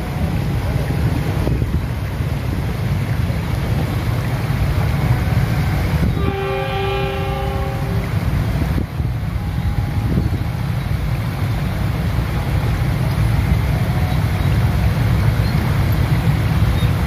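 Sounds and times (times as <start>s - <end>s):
steady low rumble: 0.0s - 6.2s
train horn blast: 5.6s - 8.3s.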